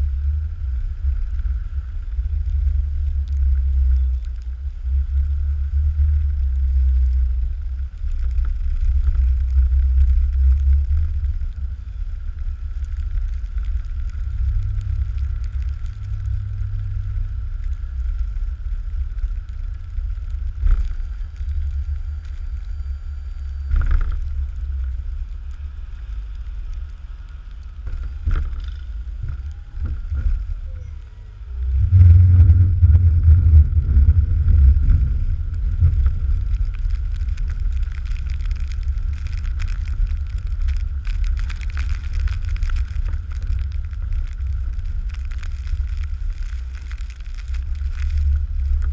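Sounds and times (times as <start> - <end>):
truck engine rumble: 0.0 - 48.9
wind buffeting microphone: 26.9 - 48.9.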